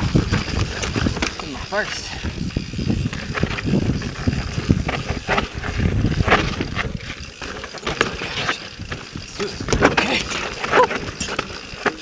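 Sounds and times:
wind rumble on microphone: 0:00.0 - 0:11.9
bike tyres rattling and scraping: 0:00.0 - 0:12.0.

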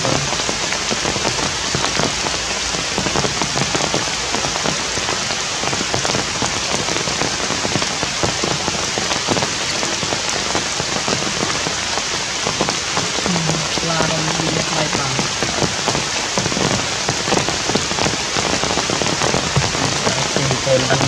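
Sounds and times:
raindrops tapping surfaces: 0:00.0 - 0:21.0
steady rain falling: 0:00.0 - 0:21.0.

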